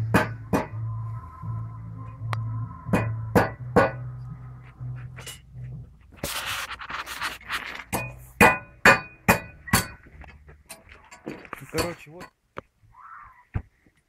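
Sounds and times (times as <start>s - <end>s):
metal skewers scraping: 3.8s - 10.0s.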